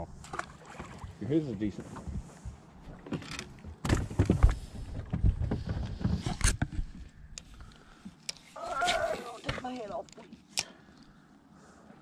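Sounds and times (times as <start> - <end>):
knocks and thumps on a boat: 0.3 - 7.1.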